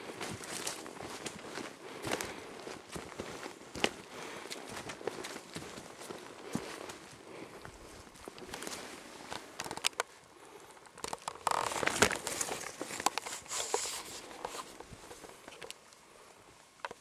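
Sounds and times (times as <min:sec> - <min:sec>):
footsteps crunching through dry leaves: 0:00.0 - 0:09.3.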